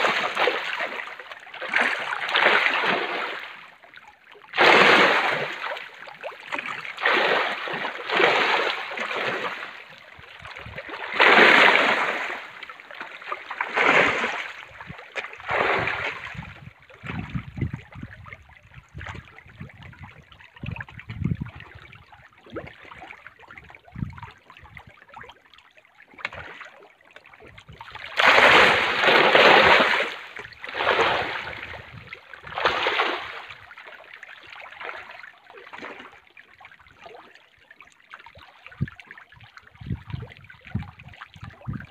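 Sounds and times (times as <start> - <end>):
fish splashing at water surface: 4.5 - 16.6, 26.1 - 36.1.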